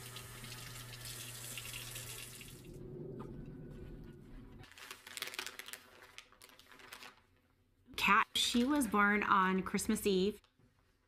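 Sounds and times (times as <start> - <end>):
tap water running into sink: 0.0 - 2.7.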